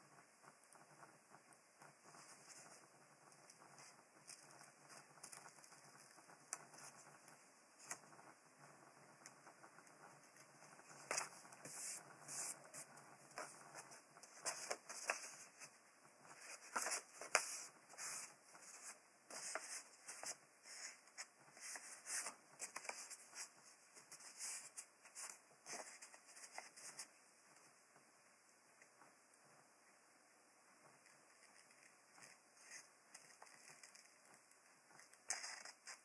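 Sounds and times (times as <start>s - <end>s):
paper rustling: 10.4s - 27.2s, 31.1s - 36.0s.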